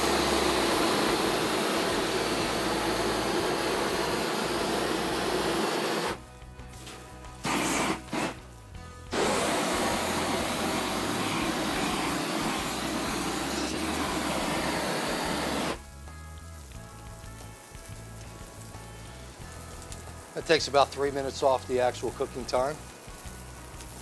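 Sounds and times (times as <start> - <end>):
gas torch blasting: 0.0 - 6.2, 6.8 - 15.9
background music: 0.1 - 24.0.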